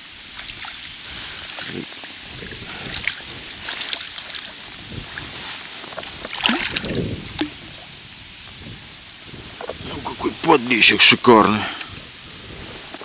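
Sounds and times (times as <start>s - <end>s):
water sloshing: 0.2s - 8.0s
fish splashing at surface: 0.3s - 7.8s.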